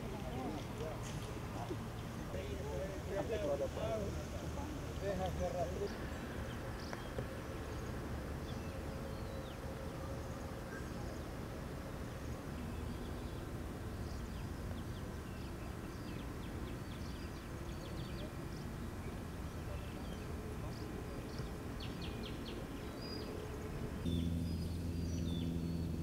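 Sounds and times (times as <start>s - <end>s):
birds chirping: 0.0s - 26.0s
low rumble: 24.1s - 26.0s.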